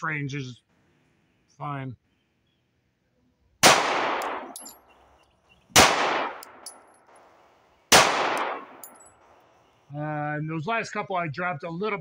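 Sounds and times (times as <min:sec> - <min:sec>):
pistol shots with echo: 0:03.6 - 0:04.8, 0:05.7 - 0:06.8, 0:07.9 - 0:09.0
light high clink: 0:04.2 - 0:04.9, 0:06.4 - 0:07.2, 0:08.4 - 0:09.3.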